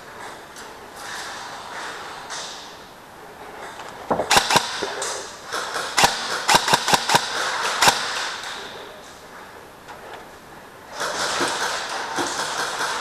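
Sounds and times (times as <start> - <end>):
airsoft gun shots: 4.2 - 4.9, 5.5 - 8.7.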